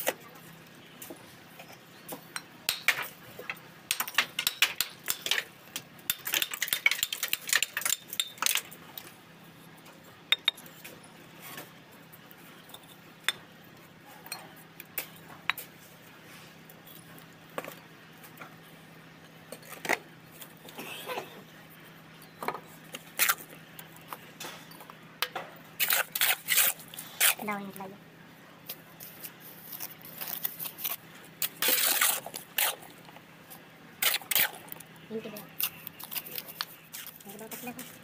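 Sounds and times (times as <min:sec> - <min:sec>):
trowel scraping and tapping bricks: 0:03.9 - 0:08.7, 0:28.7 - 0:32.9.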